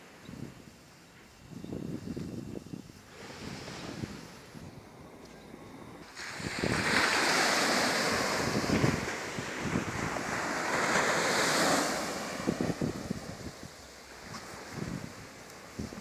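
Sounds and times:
wind buffeting microphone: 0.0 - 16.0
wave breaking on beach: 3.1 - 4.6, 6.0 - 16.0.

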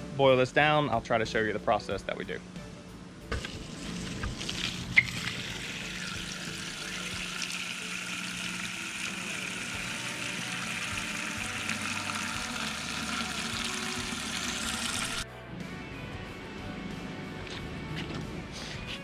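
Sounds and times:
hose water splashing into metal pot: 3.3 - 15.2.

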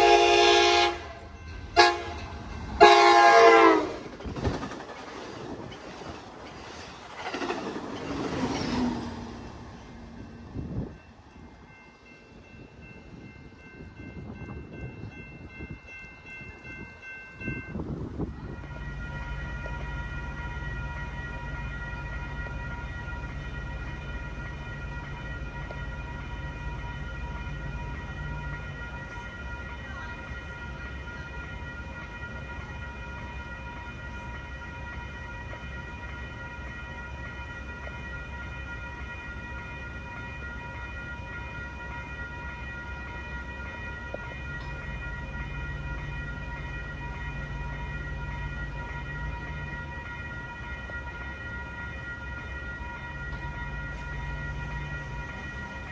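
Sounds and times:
railroad crossing bell ringing: 0.0 - 55.9.

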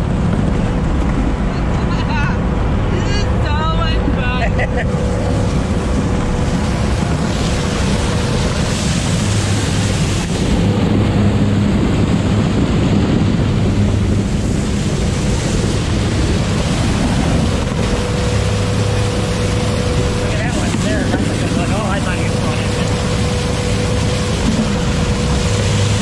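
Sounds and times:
diesel engine running: 0.0 - 26.0
water and ice splashing: 3.8 - 26.0.

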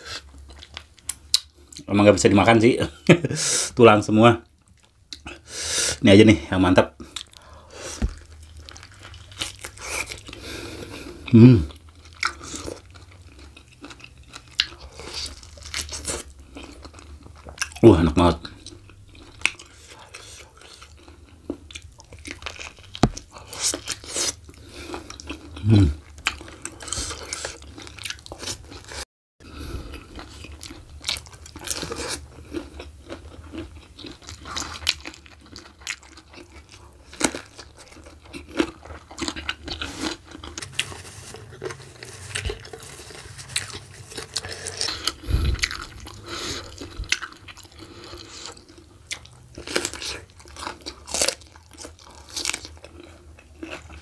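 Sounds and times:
person chewing food: 0.0 - 1.9, 4.6 - 5.5, 7.0 - 17.8, 18.4 - 54.0.

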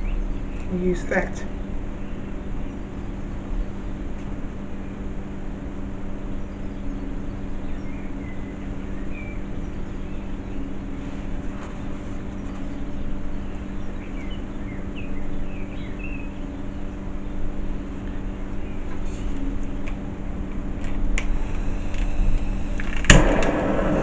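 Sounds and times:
steady low hum: 0.0 - 24.0
faint bird chirps: 6.2 - 19.8.

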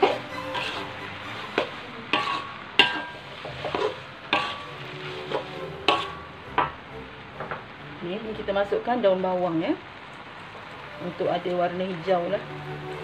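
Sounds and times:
metal spatula scraping a wok: 0.0 - 6.8
food sizzling: 0.0 - 13.0.

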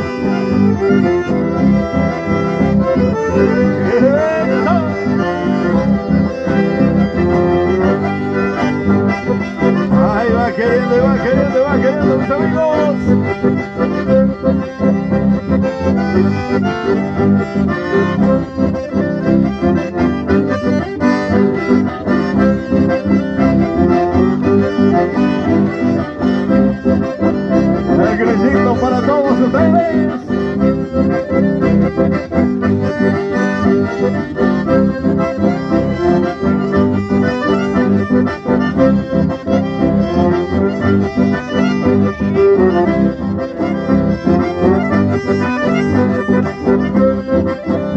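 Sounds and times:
electric bass: 0.0 - 47.9
folk dance music with accordions: 0.0 - 47.9.

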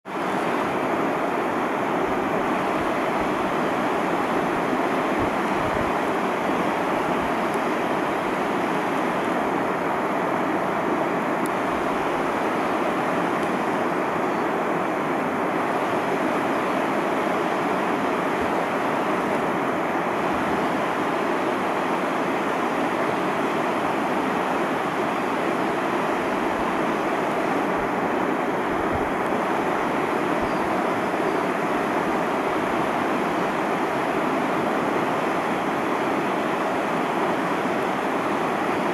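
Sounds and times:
whitewater rushing: 0.1 - 38.9.

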